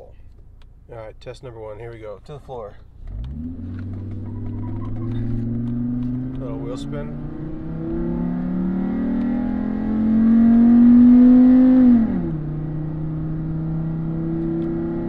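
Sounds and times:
pickup engine revving at full throttle: 3.0 - 15.0.

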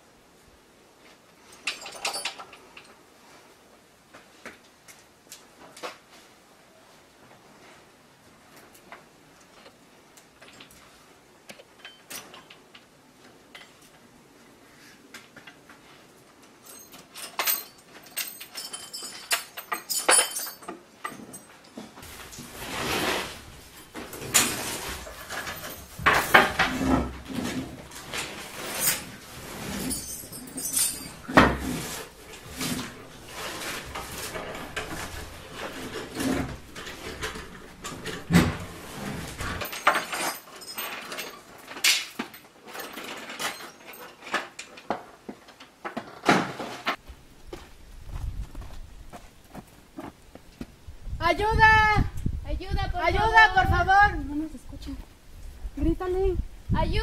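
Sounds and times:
irregular knocks and clatter: 23.4 - 50.8.

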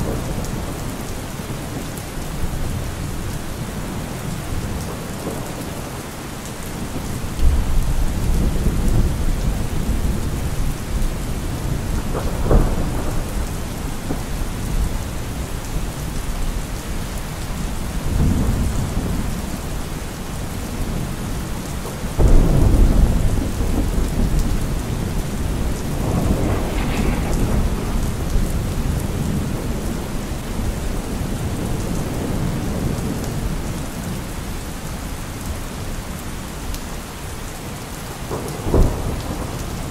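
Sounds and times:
steady rain: 0.0 - 39.9
rolling thunder: 6.8 - 34.2, 38.2 - 39.9.

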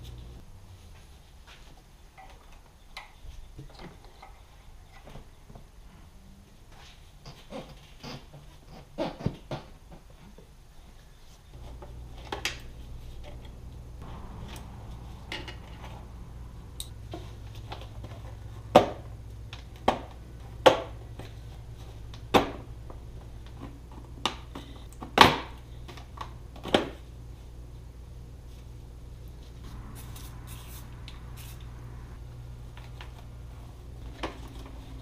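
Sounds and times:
low steady hum: 0.0 - 1.3, 11.0 - 35.0.

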